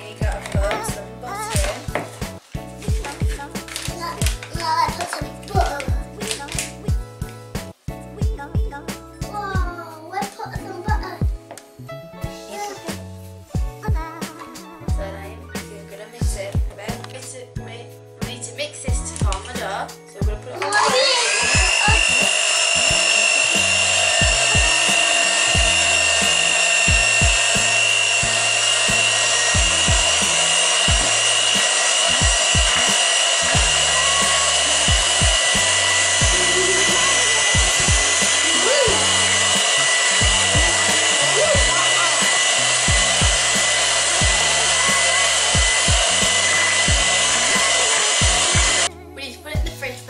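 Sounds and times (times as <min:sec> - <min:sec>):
background music with bass line: 0:00.0 - 0:50.0
electric hand mixer whining: 0:20.6 - 0:48.9.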